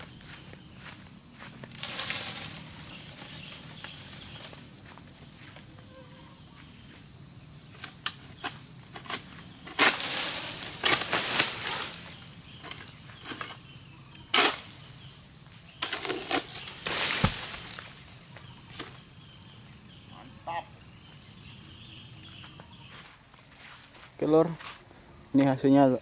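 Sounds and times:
insects shrilling: 0.0 - 26.0
blade scraping and frond rustling: 1.6 - 4.7, 7.8 - 13.6, 14.3 - 14.8, 15.8 - 19.0
fruit bunch thudding down: 16.0 - 18.0.

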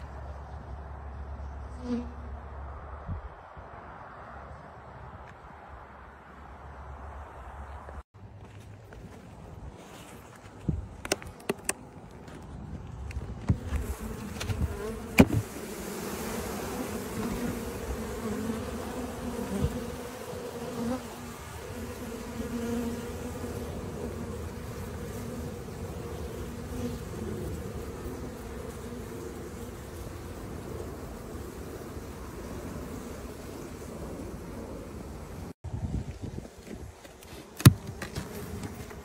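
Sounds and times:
sharp knocks on hive box: 13.4 - 15.5, 37.6 - 38.9
bees humming: 13.6 - 35.6.

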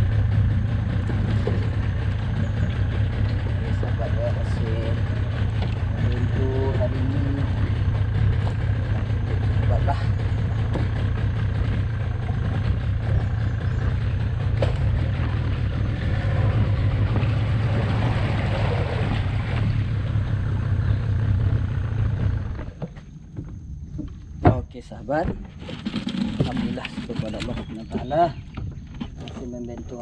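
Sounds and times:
water rushing along hull: 0.0 - 23.5
boat motor running: 0.0 - 30.0.

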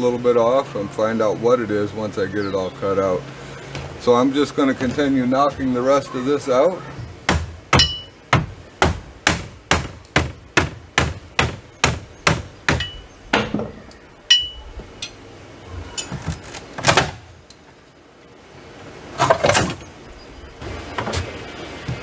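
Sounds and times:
board cracking: 16.0 - 17.4.

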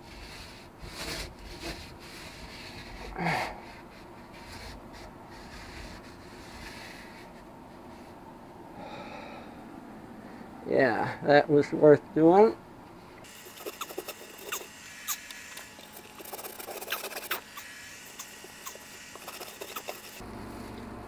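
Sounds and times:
rag rubbing fiberglass hull: 0.1 - 3.0, 13.2 - 15.2, 15.8 - 20.2
man breathing: 2.8 - 4.0, 8.7 - 11.3.

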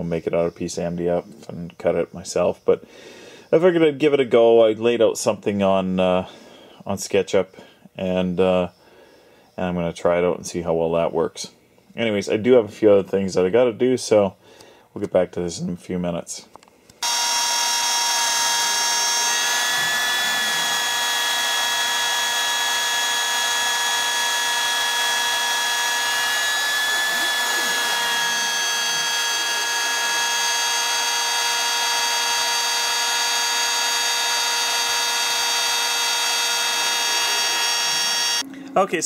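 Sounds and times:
router motor whine: 17.0 - 38.5.

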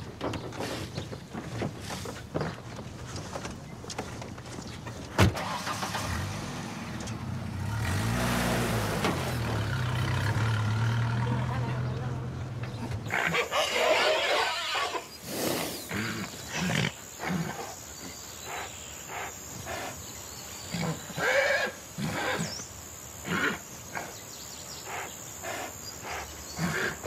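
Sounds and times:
pony groaning and moaning: 25.0 - 27.0.

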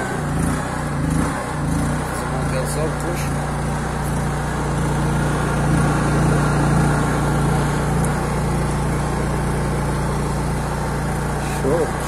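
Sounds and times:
generator engine hum: 0.0 - 12.0.

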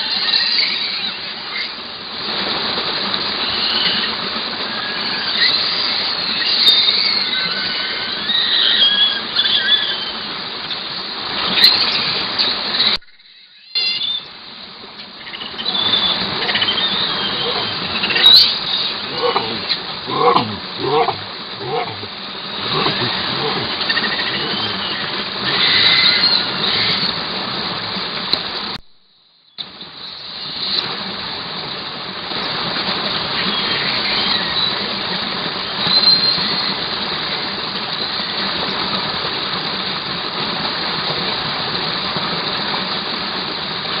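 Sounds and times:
forest stream rushing: 0.0 - 13.0, 14.3 - 28.8, 29.6 - 44.0
short high calls: 15.4 - 27.1.

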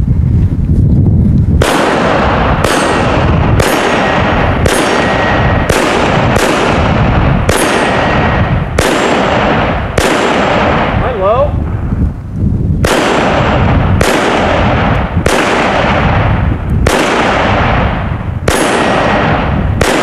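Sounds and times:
low rumble: 0.0 - 20.0
pistol shots: 1.6 - 11.2, 12.8 - 20.0.

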